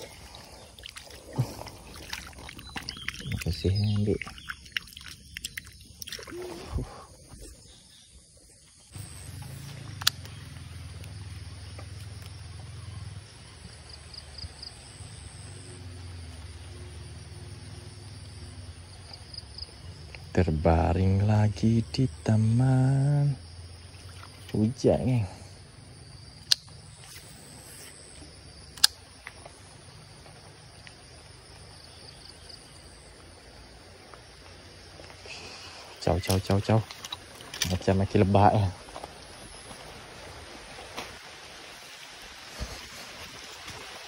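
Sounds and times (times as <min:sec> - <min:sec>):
insects chirring: 0:00.0 - 0:44.0
light rain hiss: 0:00.0 - 0:44.0
sharp clicks: 0:10.0 - 0:10.4, 0:26.4 - 0:26.7, 0:28.7 - 0:29.0.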